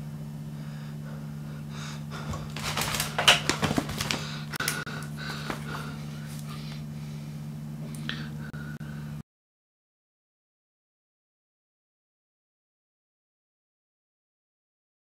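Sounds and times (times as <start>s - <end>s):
low electrical hum: 0.0s - 9.2s
clicks and rustles from handling: 2.2s - 6.5s.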